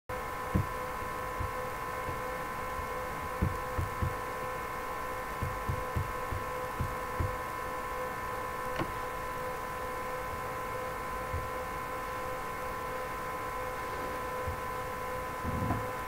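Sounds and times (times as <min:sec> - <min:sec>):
electrical hum: 0:00.1 - 0:16.0
faint high whine: 0:00.1 - 0:16.0
soft low thumps: 0:00.5 - 0:00.8, 0:03.4 - 0:04.2, 0:05.4 - 0:07.4, 0:11.3 - 0:11.5, 0:15.4 - 0:16.0.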